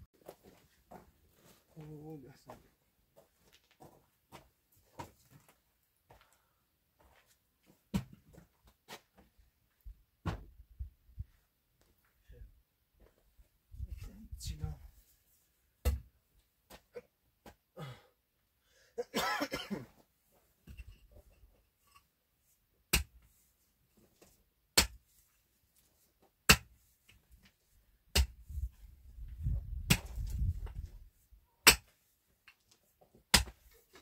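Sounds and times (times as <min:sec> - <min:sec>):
pickaxe striking stony earth: 0:15.8 - 0:16.1, 0:22.9 - 0:23.2, 0:24.8 - 0:25.0, 0:26.5 - 0:26.7, 0:28.1 - 0:28.6, 0:29.7 - 0:30.8, 0:31.6 - 0:32.0, 0:33.3 - 0:33.8.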